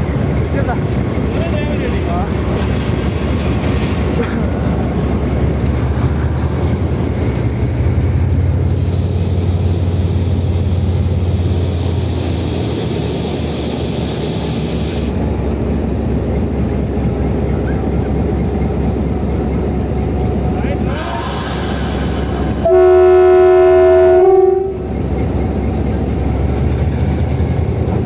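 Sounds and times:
locomotive engine drone: 0:00.0 - 0:28.0.

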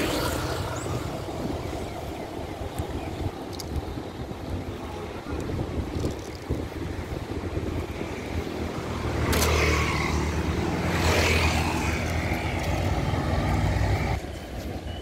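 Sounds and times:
vehicle passing by: 0:08.6 - 0:14.2.

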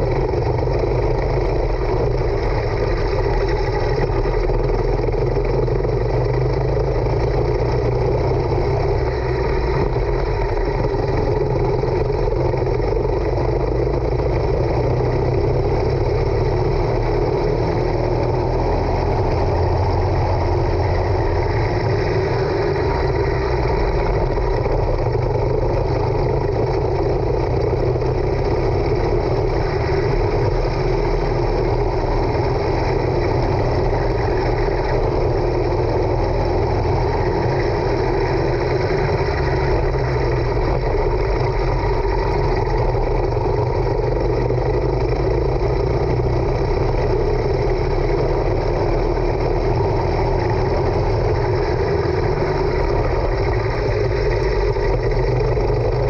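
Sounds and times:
kart engine running: 0:00.0 - 0:56.0.

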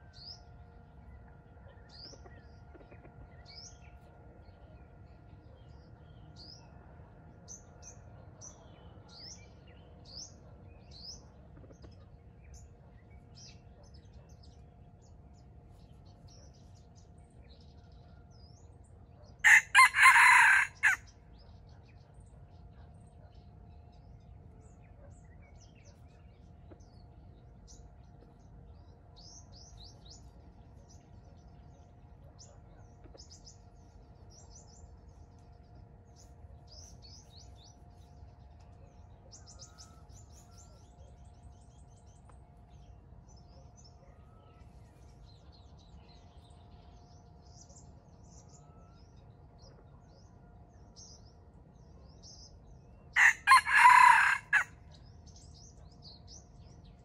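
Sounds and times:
faint hum: 0:00.0 - 0:53.6
small birds chirping: 0:07.4 - 0:57.0
rooster crowing: 0:19.4 - 0:21.1, 0:53.2 - 0:54.8.

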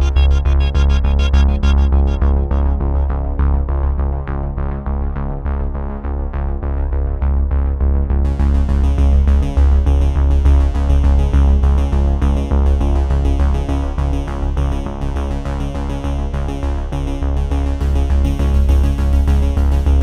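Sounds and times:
electronic music: 0:00.0 - 0:04.1.

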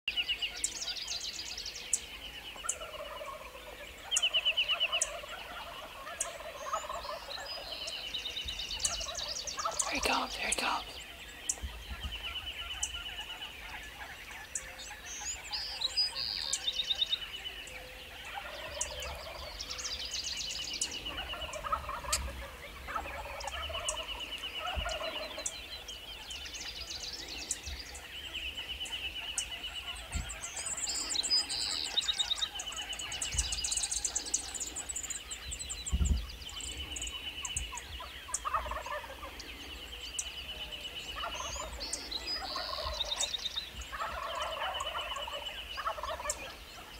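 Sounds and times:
songbirds trilling and chirping: 0:00.0 - 0:46.9
turkeys gobbling: 0:02.6 - 0:08.0, 0:08.8 - 0:11.0, 0:18.1 - 0:19.8, 0:20.8 - 0:25.6, 0:37.4 - 0:39.5, 0:40.2 - 0:46.9.

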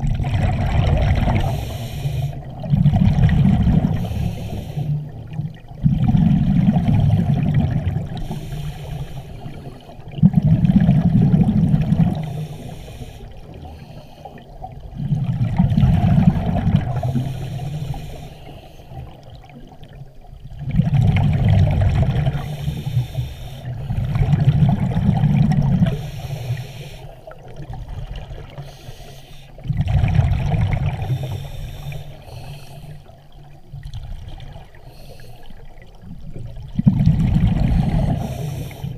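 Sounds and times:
bubbling exhalation underwater: 0:00.0 - 0:01.6, 0:02.5 - 0:04.0, 0:05.8 - 0:08.1, 0:10.2 - 0:12.2, 0:14.9 - 0:17.1, 0:20.6 - 0:22.4, 0:24.0 - 0:26.0, 0:29.7 - 0:31.2, 0:36.6 - 0:38.6
watery hiss: 0:01.3 - 0:02.5, 0:03.7 - 0:05.2, 0:08.1 - 0:10.0, 0:12.1 - 0:14.4, 0:16.1 - 0:19.1, 0:22.2 - 0:24.2, 0:25.6 - 0:27.4, 0:28.5 - 0:29.6, 0:30.9 - 0:33.1, 0:34.8 - 0:35.8, 0:37.4 - 0:38.9.

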